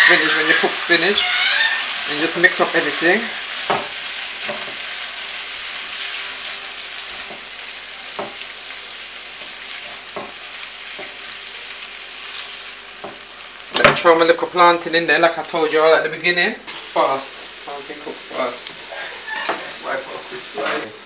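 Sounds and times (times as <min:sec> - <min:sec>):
food sizzling in a frying pan: 0:00.0 - 0:21.0
spatula knocking and scraping pan: 0:03.6 - 0:04.8, 0:08.1 - 0:08.4, 0:09.8 - 0:11.2.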